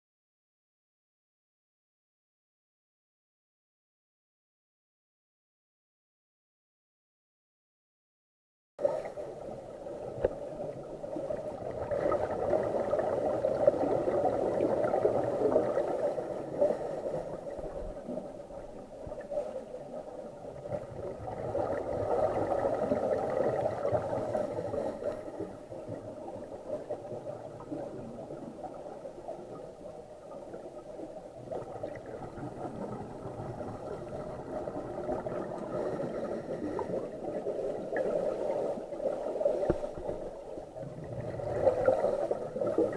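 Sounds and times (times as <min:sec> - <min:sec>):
gurgling exhaled bubbles: 0:08.8 - 0:42.9
muffled regulator breathing underwater: 0:15.6 - 0:17.8, 0:23.8 - 0:25.6, 0:33.5 - 0:38.7, 0:41.1 - 0:42.9.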